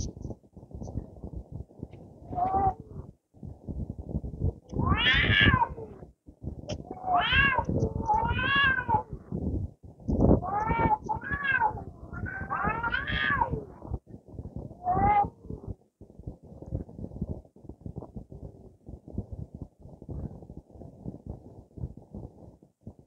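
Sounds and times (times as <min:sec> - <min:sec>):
cats yowling: 0:02.3 - 0:02.8, 0:04.8 - 0:06.0, 0:06.9 - 0:09.1, 0:10.4 - 0:13.7, 0:14.8 - 0:15.4
cat growling: 0:04.7 - 0:06.0, 0:06.8 - 0:09.2, 0:10.4 - 0:13.7.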